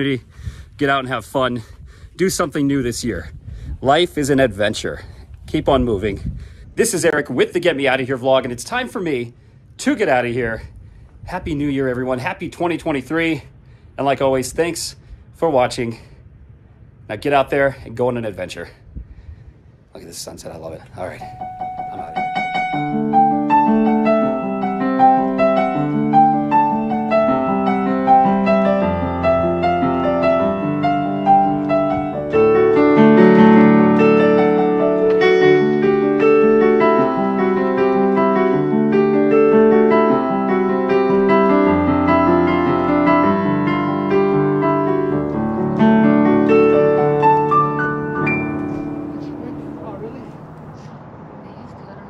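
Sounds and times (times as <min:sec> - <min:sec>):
piano music: 0:21.1 - 0:50.7.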